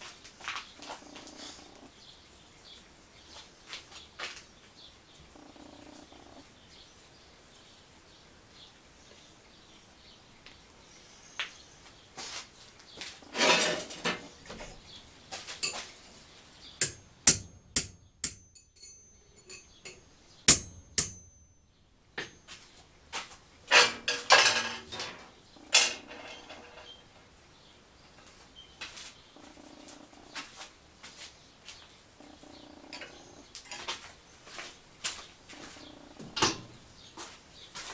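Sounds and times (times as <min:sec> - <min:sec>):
steel parts clattering on table: 0:13.3 - 0:14.2, 0:15.6 - 0:15.9, 0:23.7 - 0:27.0
steel scraping: 0:13.3 - 0:14.3, 0:24.9 - 0:27.0
steel clanking: 0:16.8 - 0:21.3, 0:23.7 - 0:27.0.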